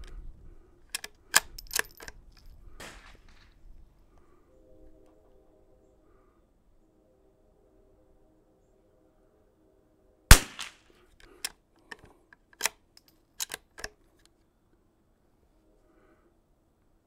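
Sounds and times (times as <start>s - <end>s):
rifle bolt clicking: 0.9s - 3.2s, 10.3s - 14.0s
rifle shot: 2.8s - 3.4s, 10.3s - 10.8s.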